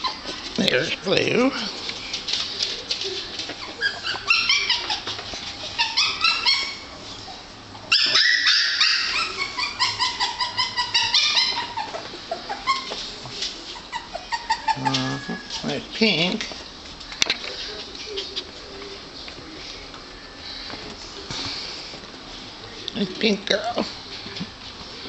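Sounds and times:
puppies whimpering and yipping: 0:00.0 - 0:00.6, 0:01.7 - 0:15.8.

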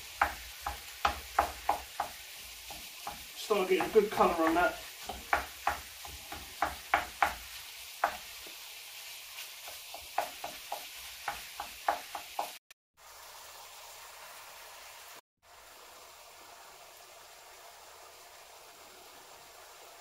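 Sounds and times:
meat sizzling in a pan: 0:00.0 - 0:20.0
utensil knocking against pan: 0:00.2 - 0:08.3, 0:09.7 - 0:12.6.

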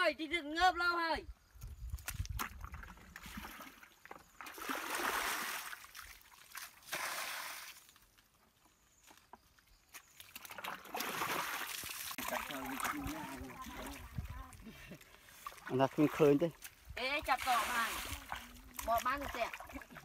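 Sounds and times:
water splashing and sloshing: 0:01.6 - 0:08.3, 0:09.9 - 0:20.0
water gushing from bucket: 0:04.4 - 0:06.2, 0:10.4 - 0:14.7, 0:15.4 - 0:20.0.

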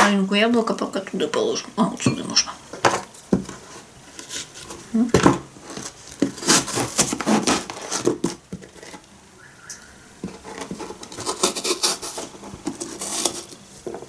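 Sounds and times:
knife crunching through apple: 0:05.7 - 0:09.0, 0:10.4 - 0:13.6.

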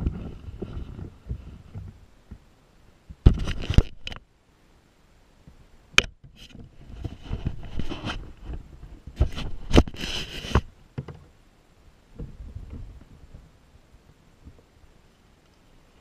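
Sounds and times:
clothing rubbing near microphone: 0:00.0 - 0:02.0, 0:06.3 - 0:10.7.

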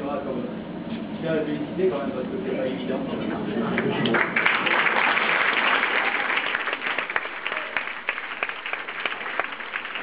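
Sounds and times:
crowd applauding: 0:03.8 - 0:10.0.

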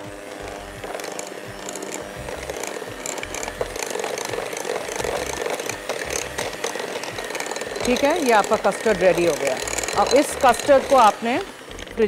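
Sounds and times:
beaters clicking on glass bowl: 0:00.0 - 0:12.0
electric hand mixer running: 0:00.0 - 0:12.0.

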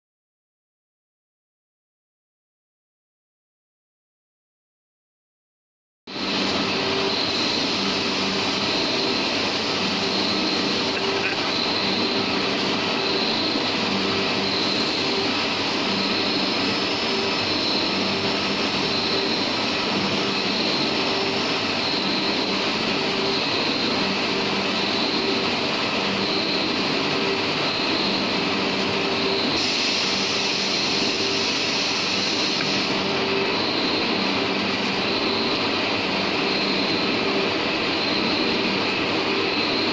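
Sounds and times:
machinery drone: 0:06.1 - 0:39.9
high hiss: 0:26.3 - 0:34.4.

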